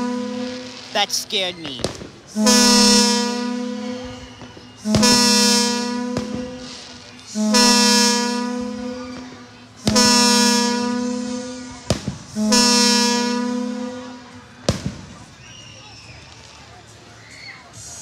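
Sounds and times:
two-tone air horn blasts: 0.0s - 0.9s, 1.8s - 14.4s
firework bangs: 0.0s - 16.7s.

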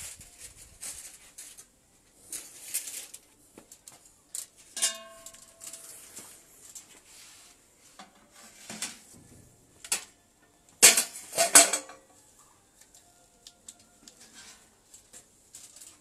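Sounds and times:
metal lid clanking: 4.8s - 5.5s, 10.8s - 12.1s
metal tongs clinking in pot: 4.8s - 5.9s.

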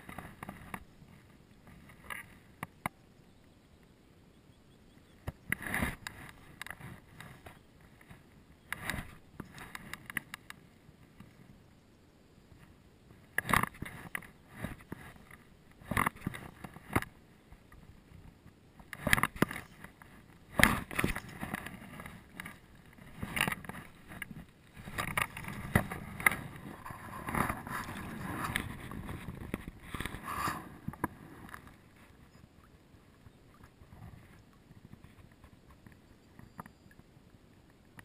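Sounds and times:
water splashing and sloshing: 18.8s - 36.7s.

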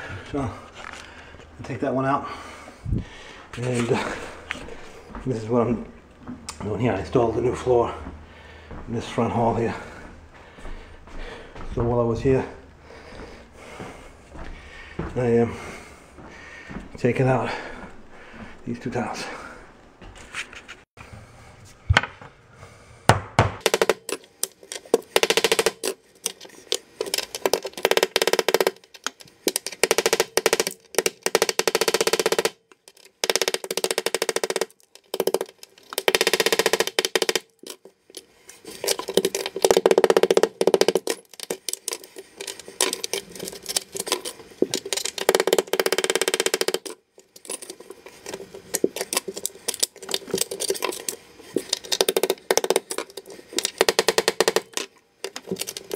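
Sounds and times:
hammer and chisel on stone tile: 23.1s - 55.9s.

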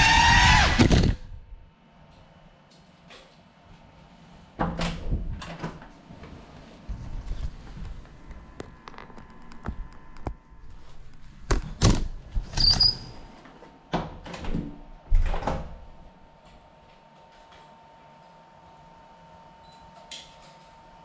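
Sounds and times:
short high squeak: 12.6s - 13.2s.

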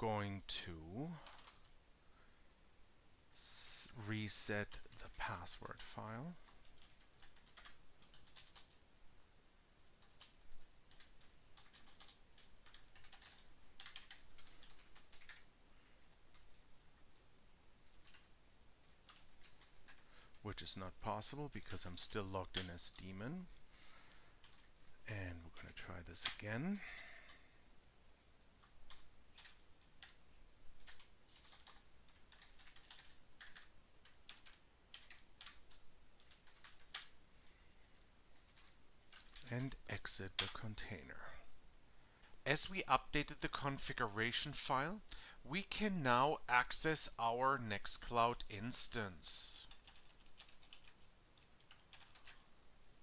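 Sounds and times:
keyboard typing: 1.2s - 1.7s, 5.7s - 8.8s, 10.0s - 15.5s, 17.8s - 20.4s, 24.4s - 24.7s, 28.6s - 30.2s, 30.8s - 37.2s, 38.4s - 39.8s, 49.6s - 52.5s.

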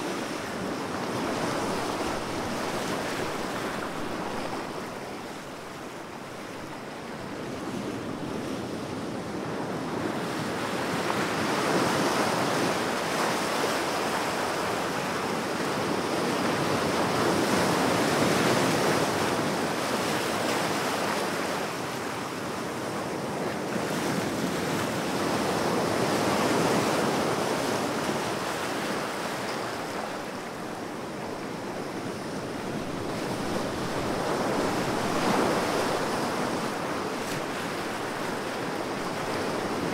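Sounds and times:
ocean waves breaking: 0.0s - 8.8s, 24.2s - 39.9s.

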